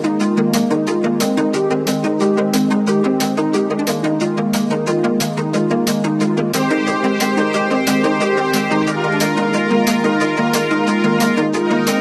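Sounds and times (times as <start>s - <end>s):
music with steady beat: 0.0s - 12.0s.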